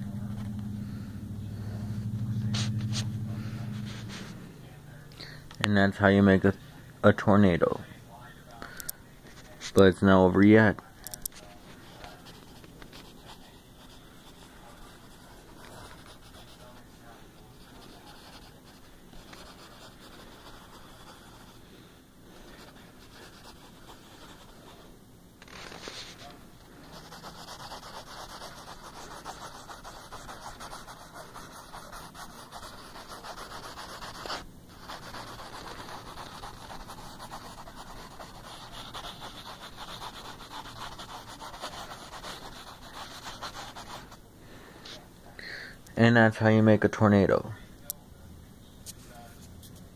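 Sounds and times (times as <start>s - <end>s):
pencil scratching on paper: 11.8s - 21.7s, 22.4s - 24.8s, 25.4s - 44.2s.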